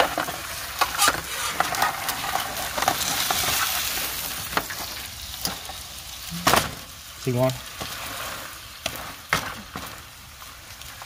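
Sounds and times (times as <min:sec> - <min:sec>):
spatula scraping a foil pan: 0:00.0 - 0:04.9
meatloaf sizzling: 0:00.0 - 0:11.0.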